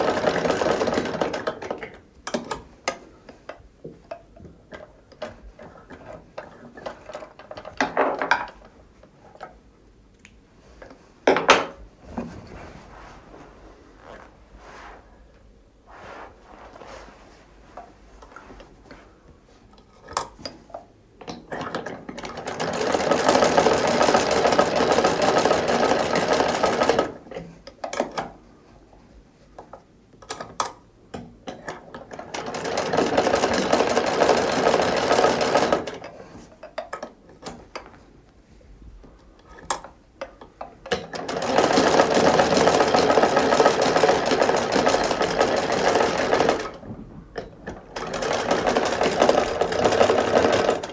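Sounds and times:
sewing machine stitching: 0.0 - 2.6, 21.5 - 27.2, 31.6 - 36.2, 40.9 - 50.9.

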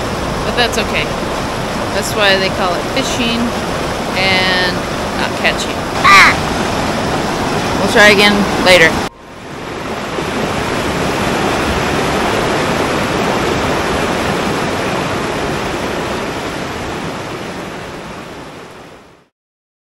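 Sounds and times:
river rapids rushing over rocks: 3.4 - 18.3.

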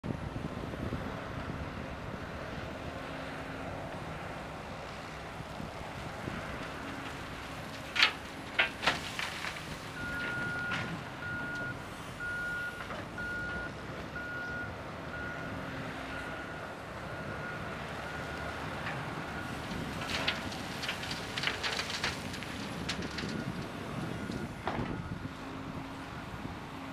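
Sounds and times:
diesel engine running: 0.6 - 26.9
clattering: 7.7 - 10.9, 19.7 - 23.6
reversing alarm beeps: 10.0 - 15.5.

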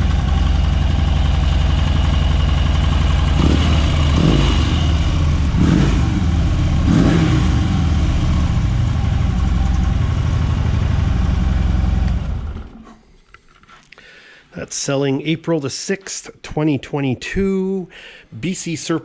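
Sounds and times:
motorcycle engine idling and revving: 0.0 - 12.8.

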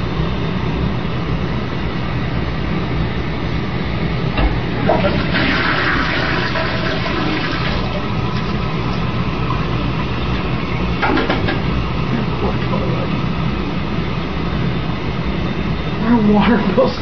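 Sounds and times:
toilet flushing: 4.3 - 13.2.

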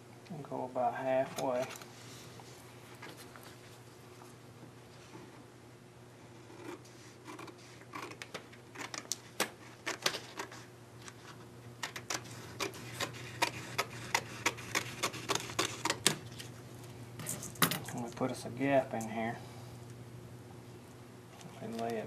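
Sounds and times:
scissors snipping paper: 11.8 - 16.2.

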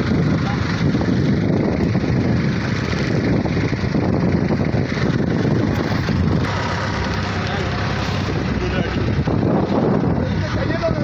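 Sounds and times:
boat engine running: 0.0 - 11.0
wind buffeting microphone: 0.0 - 11.0.

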